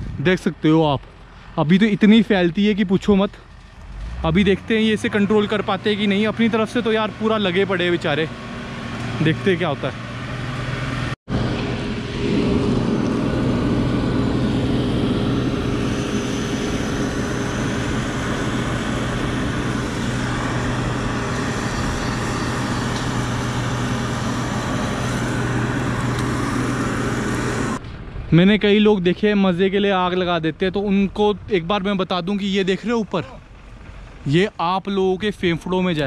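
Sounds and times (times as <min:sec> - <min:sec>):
fire engine pump motor drone: 0:00.0 - 0:36.0.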